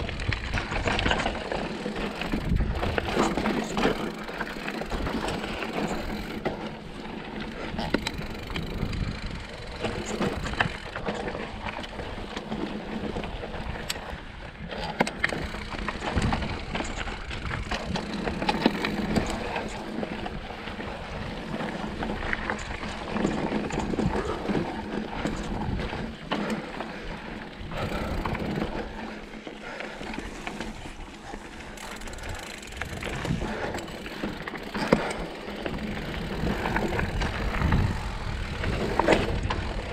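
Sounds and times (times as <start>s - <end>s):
wind rumble on microphone: 0.0s - 4.1s, 7.0s - 26.1s, 32.1s - 34.0s, 34.9s - 39.9s
bike rattling and knocking: 0.0s - 39.9s
bike tyres on dirt and rock: 0.0s - 39.9s.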